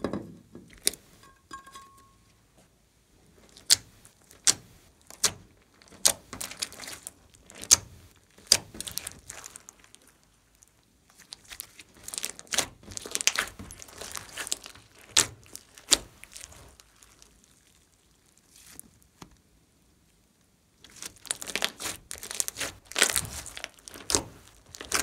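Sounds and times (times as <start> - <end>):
crackly slime squishing: 3.3 - 19.6, 20.4 - 25.0
slime popping and snapping: 11.3 - 17.3, 20.9 - 25.0.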